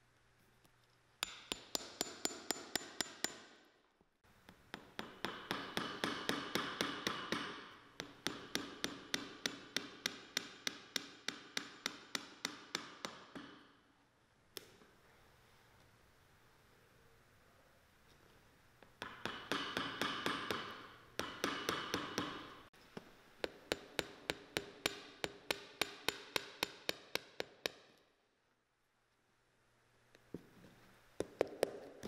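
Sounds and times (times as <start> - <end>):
hammer tapping pegs into leather sole: 4.4 - 13.7, 19.0 - 22.5, 23.4 - 28.0.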